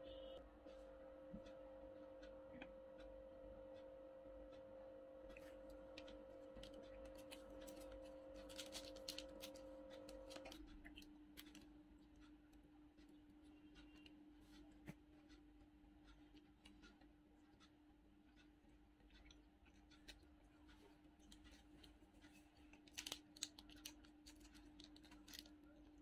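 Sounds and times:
faint steady hum: 0.0 - 26.0
crispy fried food crackling: 5.3 - 12.3, 19.1 - 26.0.

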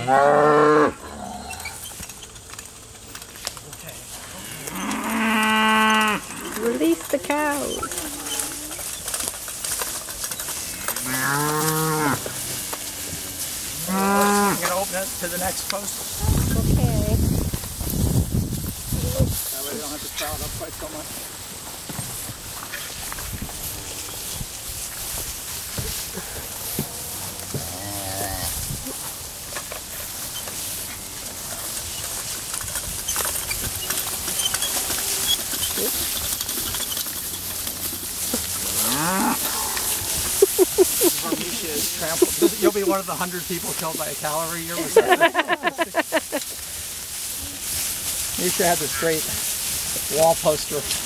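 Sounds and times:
cow mooing: 0.0 - 1.8, 4.3 - 6.7, 10.8 - 14.7, 27.5 - 28.5, 38.6 - 40.4
hooves knocking on ground: 0.0 - 51.0
rustling of cattle in brush: 0.1 - 51.0.

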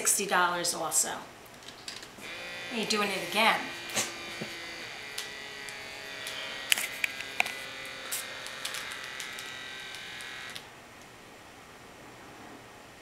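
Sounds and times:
air pump buzzing: 2.2 - 10.7
sharp clicks: 5.1 - 11.1.

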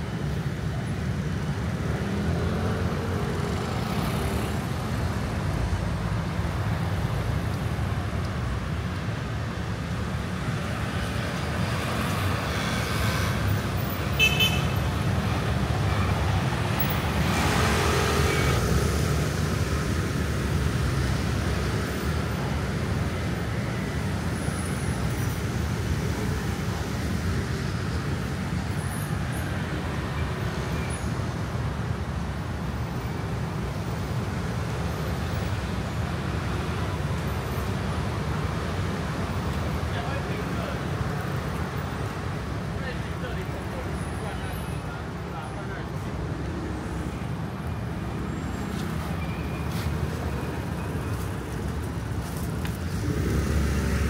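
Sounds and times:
street traffic rumble: 0.0 - 54.0
loud vehicle passing: 49.7 - 54.0.

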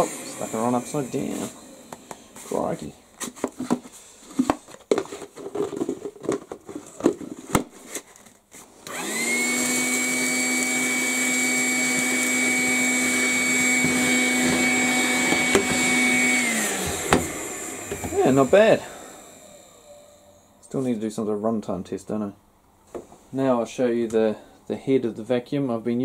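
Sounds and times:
handheld vacuum motor whine: 0.0 - 2.5, 8.8 - 20.6.

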